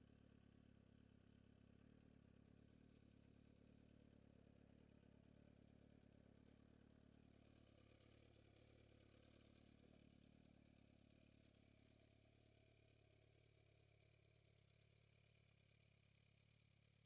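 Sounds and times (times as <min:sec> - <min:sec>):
motorcycle engine at low revs: 0:00.0 - 0:17.0.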